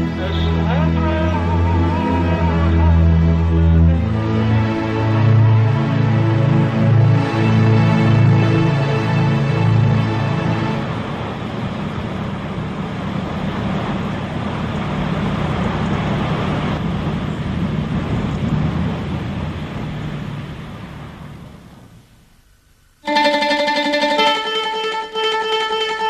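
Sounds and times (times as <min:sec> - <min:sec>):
street traffic noise: 0:00.0 - 0:26.0.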